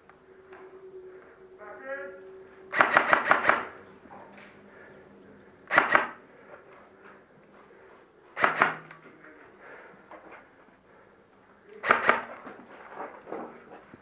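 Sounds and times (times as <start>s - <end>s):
airsoft rifle rapid bursts: 2.7s - 3.7s, 5.7s - 6.2s, 8.4s - 8.9s, 11.8s - 12.4s.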